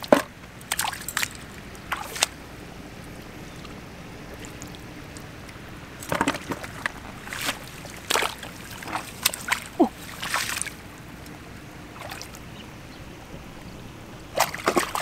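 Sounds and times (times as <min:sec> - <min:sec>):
hands splashing in muddy water: 0:00.7 - 0:02.3, 0:06.0 - 0:10.8, 0:14.4 - 0:15.0.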